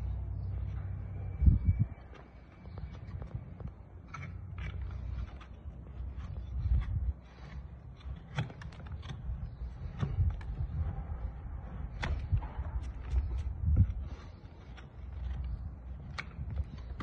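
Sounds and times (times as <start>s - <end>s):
low rumble: 0.0s - 7.2s
hoof clicks and scraping: 0.0s - 17.0s.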